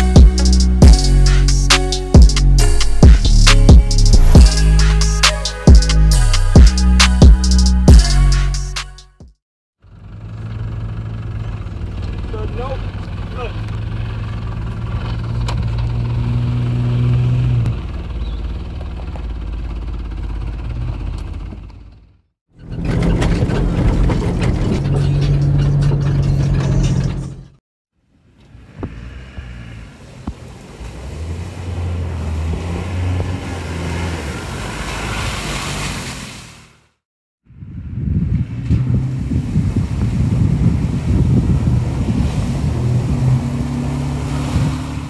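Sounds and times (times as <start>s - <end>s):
car engine idling: 9.8s - 16.0s, 17.7s - 27.4s
engine driving through muddy water: 9.8s - 27.5s, 28.9s - 36.9s, 37.9s - 45.0s
vehicle driving on trail: 9.8s - 45.0s.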